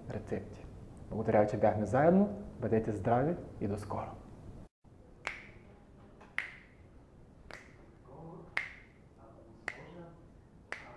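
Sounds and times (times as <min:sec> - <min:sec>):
finger snapping: 0:05.2 - 0:05.6, 0:06.4 - 0:06.7, 0:07.5 - 0:07.8, 0:08.6 - 0:08.9.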